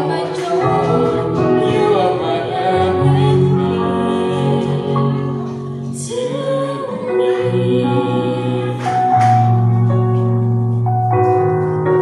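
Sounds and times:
man and woman singing gospel duet: 0.0s - 9.5s.

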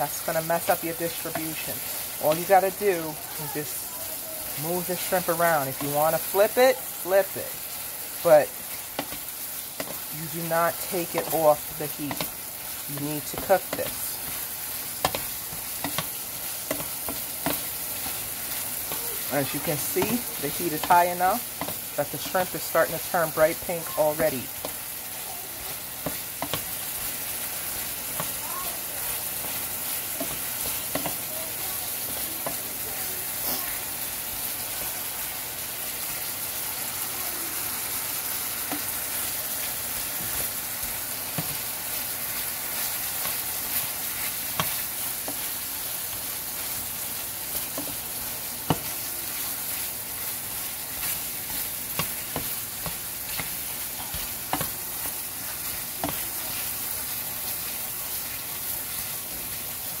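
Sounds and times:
shrimp sizzling in a frying pan: 0.0s - 60.0s
wooden spatula scraping a pan: 10.7s - 24.8s, 25.7s - 33.8s, 38.2s - 59.1s
spatula knocking against pan: 15.0s - 17.7s.

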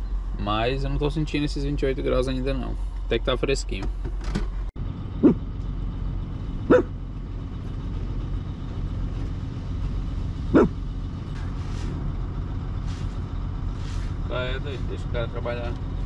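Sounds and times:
engine idling: 0.0s - 16.0s
dog barking: 5.2s - 5.4s, 6.7s - 7.0s, 10.5s - 10.8s.

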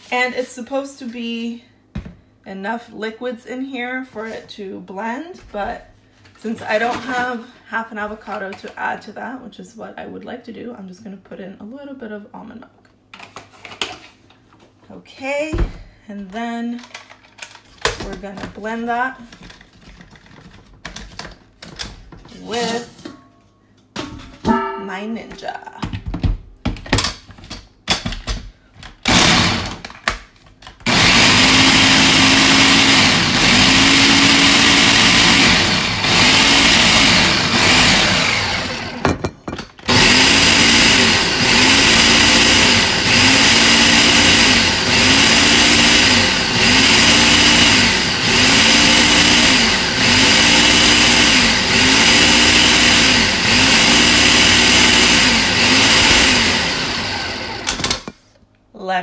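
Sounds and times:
blender motor blending: 29.0s - 29.9s, 30.8s - 39.1s, 39.8s - 58.1s.

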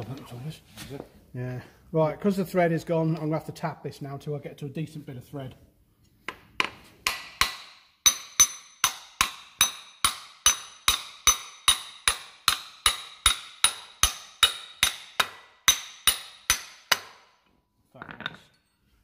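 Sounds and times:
hammer striking steel tool: 6.6s - 17.3s.

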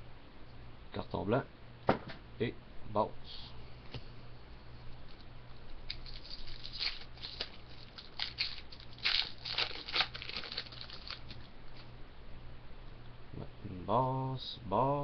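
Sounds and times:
foil wrapper crinkling and tearing: 5.8s - 11.5s.

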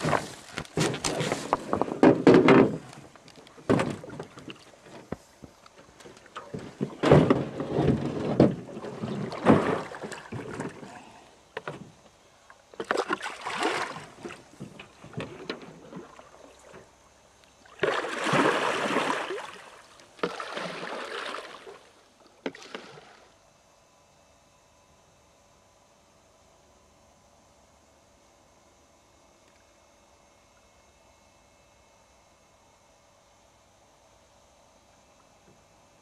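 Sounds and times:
paddle strokes splashing in water: 0.0s - 11.8s, 12.8s - 16.9s, 17.6s - 23.2s.

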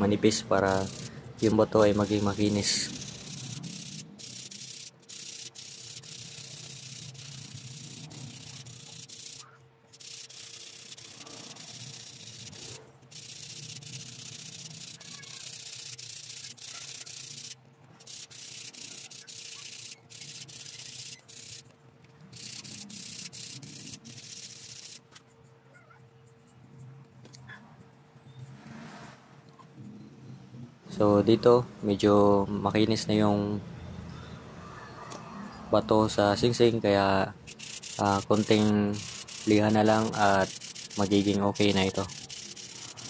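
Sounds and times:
sandpaper rasping on stone: 0.6s - 21.6s, 22.4s - 25.0s, 37.5s - 43.0s.

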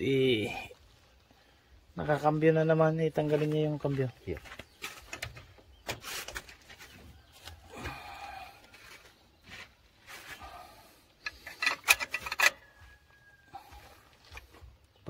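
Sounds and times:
metal clicks and scraping: 11.2s - 12.8s.

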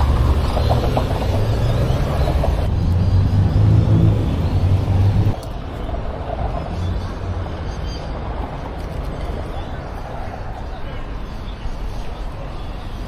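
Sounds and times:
vehicle engine rumble: 0.0s - 7.6s
street background noise: 0.0s - 13.0s.

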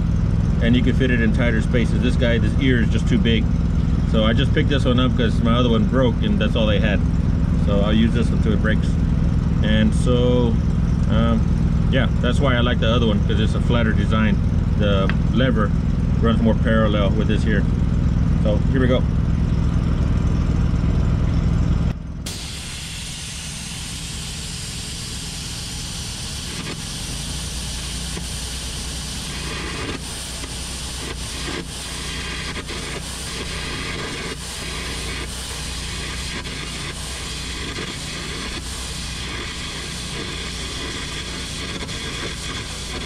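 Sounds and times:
loud low hum: 0.0s - 43.0s
arc crackling: 17.0s - 43.0s
hissing rush of compressed air: 22.3s - 43.0s.

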